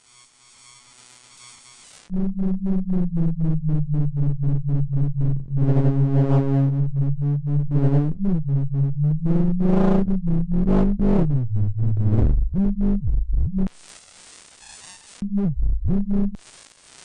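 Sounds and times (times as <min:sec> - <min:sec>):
pulsing synthesizer tone: 0:02.1 - 0:13.7, 0:15.2 - 0:16.4.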